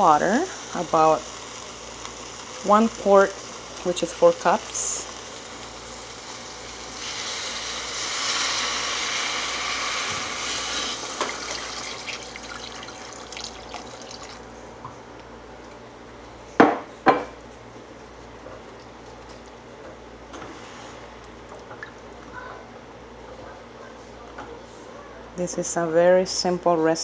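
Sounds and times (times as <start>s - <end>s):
water pouring into a pot: 6.9s - 14.5s.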